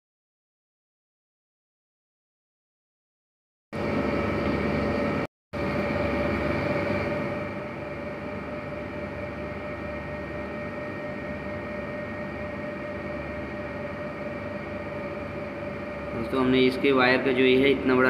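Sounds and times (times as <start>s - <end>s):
mid-pitched whine: 3.8s - 18.0s.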